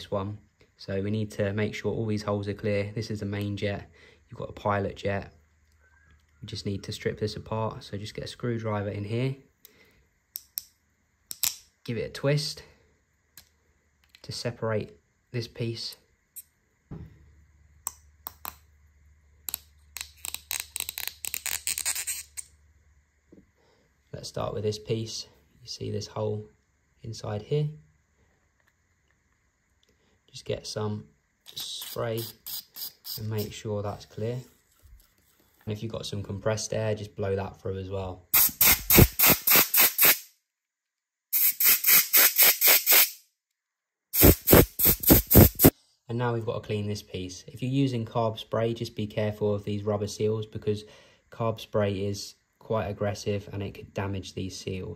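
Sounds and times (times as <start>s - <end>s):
compressed-air blow gun blasts: 38.4s - 40.2s, 44.2s - 45.7s.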